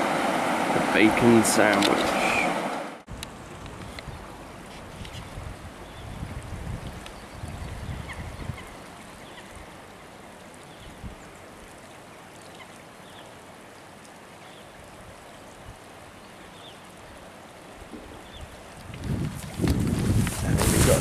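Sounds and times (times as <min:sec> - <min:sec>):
water rushing over stones: 0:00.0 - 0:02.8, 0:11.4 - 0:21.0.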